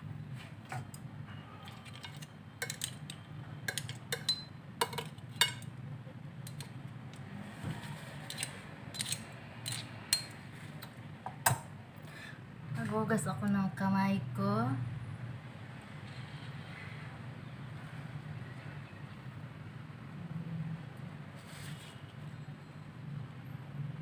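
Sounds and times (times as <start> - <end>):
metal tongs clicking on plate: 1.9 - 3.1, 8.3 - 10.3.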